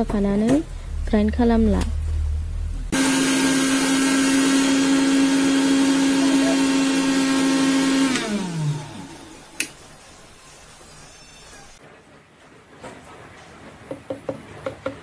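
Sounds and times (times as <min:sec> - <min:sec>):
blender motor grinding biscuits: 0:02.9 - 0:09.8.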